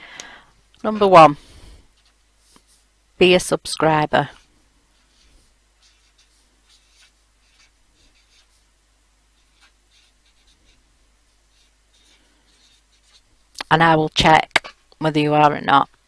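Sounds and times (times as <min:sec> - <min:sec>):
marker scratching on card: 0:05.0 - 0:08.6, 0:09.4 - 0:13.3.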